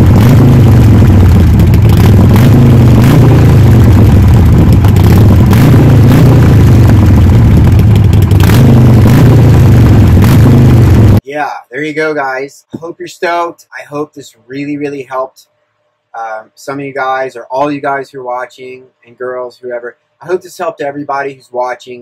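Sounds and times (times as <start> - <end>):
motorcycle engine running: 0.0 - 11.2.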